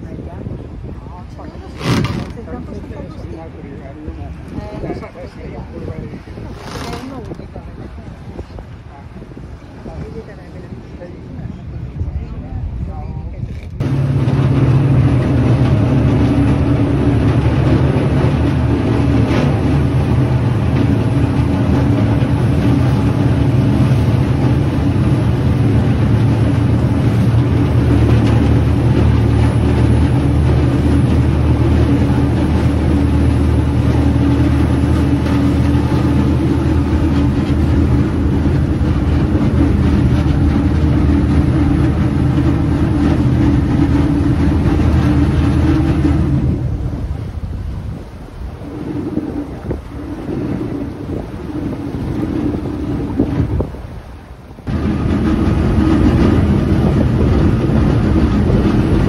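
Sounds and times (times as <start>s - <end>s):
motorboat engine droning: 0.0s - 59.0s
wake churning water: 0.0s - 59.0s.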